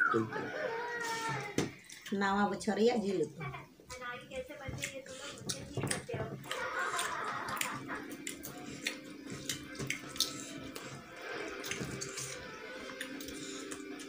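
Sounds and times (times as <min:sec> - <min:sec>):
wet clicks and smacks of eating: 0:01.7 - 0:02.2, 0:03.9 - 0:14.0.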